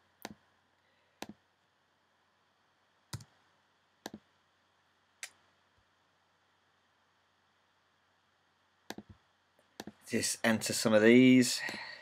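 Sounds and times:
computer mouse clicking: 0.2s - 0.4s, 1.2s - 1.4s, 3.1s - 3.3s, 4.0s - 4.2s, 8.9s - 10.0s.

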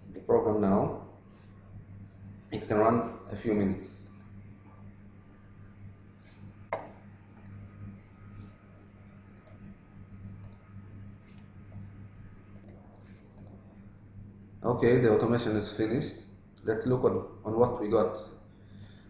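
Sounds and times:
low electrical hum: 0.0s - 19.0s
computer mouse clicks: 6.8s - 7.6s, 9.1s - 9.7s, 10.4s - 11.8s, 12.5s - 13.6s.

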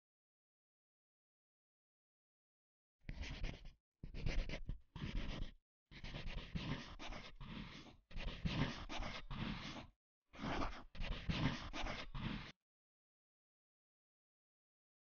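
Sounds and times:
pencil scratching on paper: 3.1s - 12.6s.

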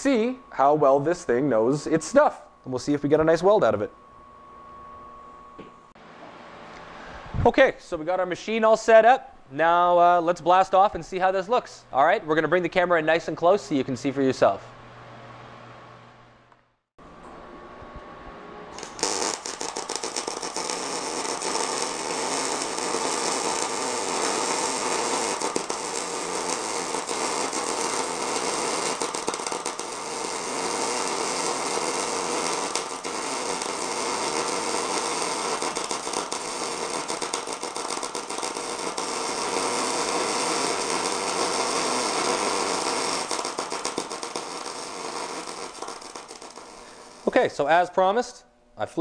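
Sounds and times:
welding arc crackling: 0.0s - 3.6s, 18.7s - 48.2s.

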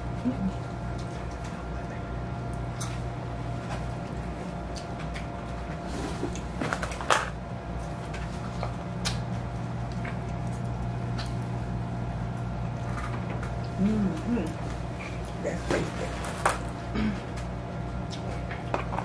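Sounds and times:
steady low hum: 0.0s - 19.0s
person biting and chewing food: 7.8s - 11.8s.

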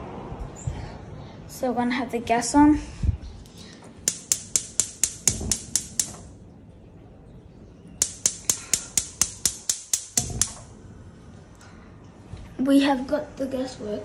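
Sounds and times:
gas stove igniter clicking: 4.0s - 6.3s, 8.0s - 10.7s.

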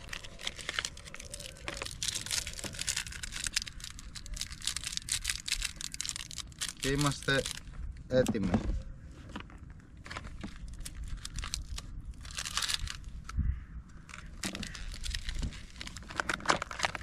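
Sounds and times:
plastic packaging crinkling: 0.0s - 7.8s, 10.0s - 13.3s, 14.1s - 17.0s.

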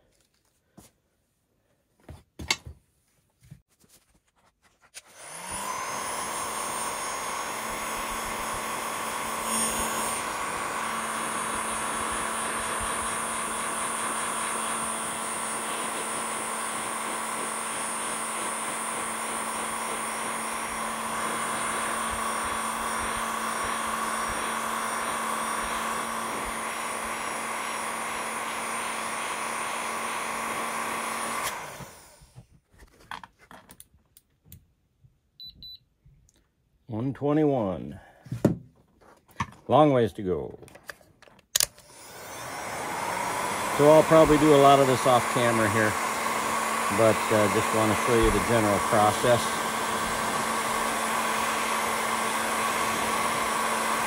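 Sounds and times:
heat gun running: 5.0s - 32.4s, 41.6s - 54.0s.

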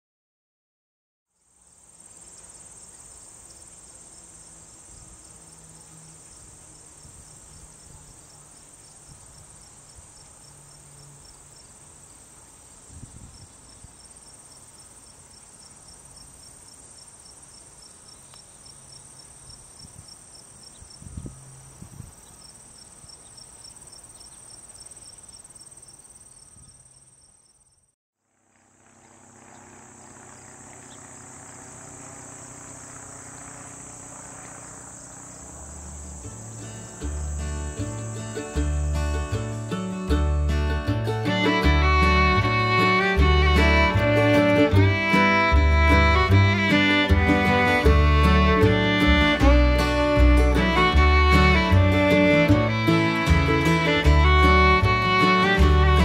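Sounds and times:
insects trilling: 1.4s - 40.0s, 41.2s - 56.0s
insect calling in pulses: 16.8s - 39.0s
low bumps: 35.3s - 56.0s.

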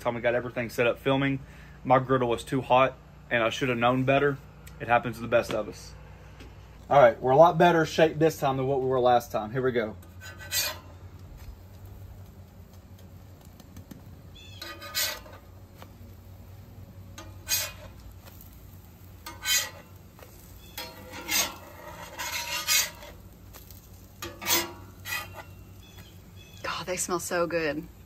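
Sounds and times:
low steady hum: 0.0s - 28.0s
metal spatula scraping griddle: 9.8s - 11.0s, 14.4s - 15.5s, 17.2s - 26.1s.

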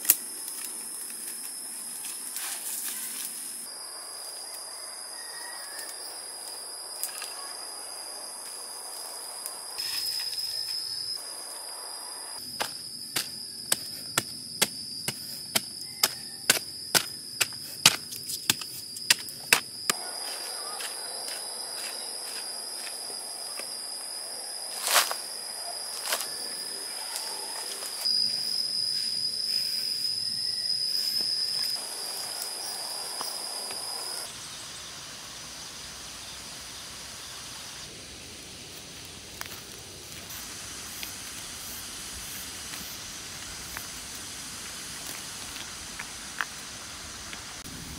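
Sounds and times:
high insect drone: 0.0s - 47.9s
digging stick striking clay: 12.6s - 20.0s.

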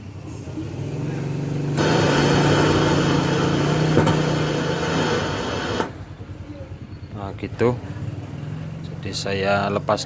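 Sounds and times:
radio tuner rushing noise: 1.8s - 6.0s
steady low hum: 1.8s - 6.2s.

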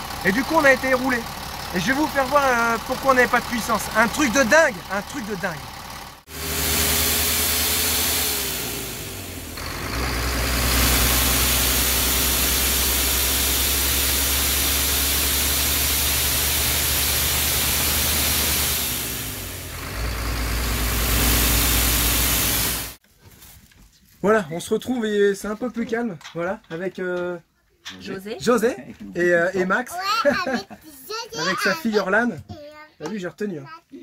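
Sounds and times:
diesel bus engine running: 0.0s - 23.0s
rushing hiss of escaping air: 10.4s - 19.5s, 20.8s - 23.0s.

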